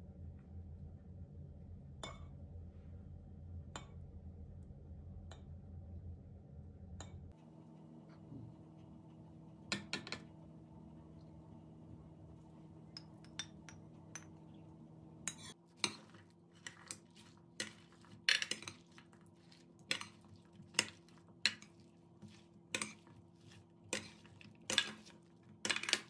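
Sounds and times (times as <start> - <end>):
low background hum: 0.0 - 26.0.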